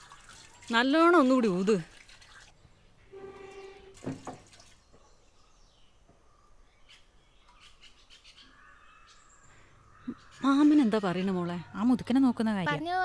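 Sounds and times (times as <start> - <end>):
faint bird chirps: 4.8 - 12.0.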